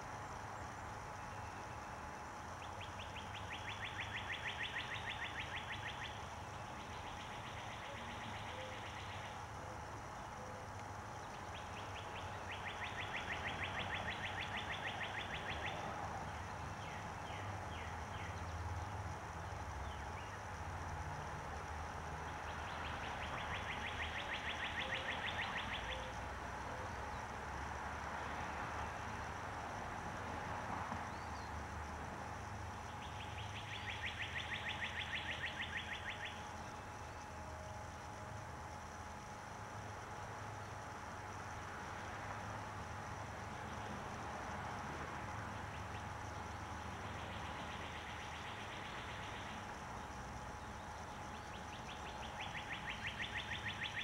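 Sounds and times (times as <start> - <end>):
songbird trilling: 51.5 - 54.0.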